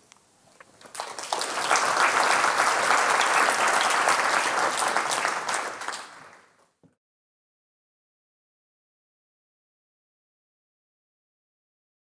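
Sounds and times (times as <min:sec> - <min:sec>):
audience applauding: 0:00.8 - 0:06.6.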